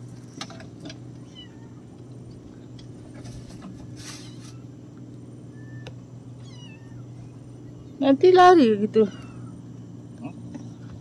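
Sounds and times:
steady low hum: 0.0 - 11.0
brief rustle: 3.1 - 4.6
faint bird chirps: 5.5 - 8.0.

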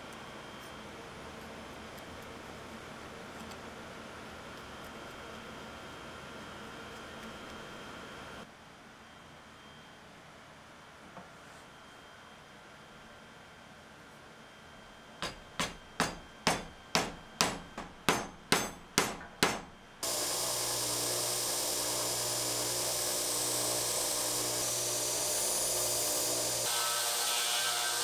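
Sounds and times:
belt grinder running: 20.0 - 28.0.

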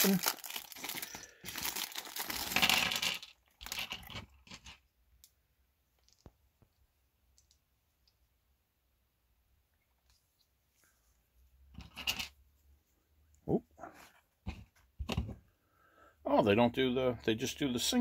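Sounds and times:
plastic bag crinkling: 0.0 - 4.3
plastic pieces dropping on table: 0.8 - 4.8.

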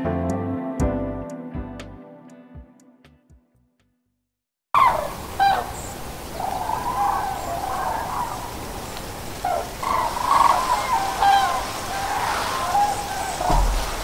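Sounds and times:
cranes trumpeting calls: 4.8 - 14.0.

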